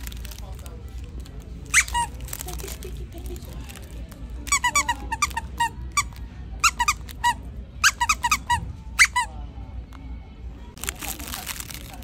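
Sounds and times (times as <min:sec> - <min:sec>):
dog toy squeaking: 0:01.7 - 0:02.4, 0:04.4 - 0:09.4.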